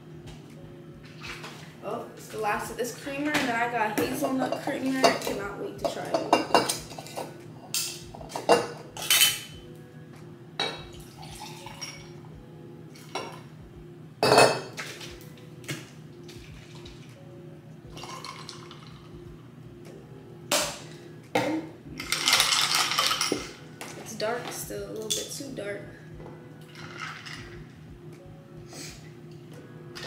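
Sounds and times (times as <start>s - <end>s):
low steady hum: 0.0s - 30.0s
mug and spoon clinking: 5.0s - 9.5s, 14.2s - 14.7s.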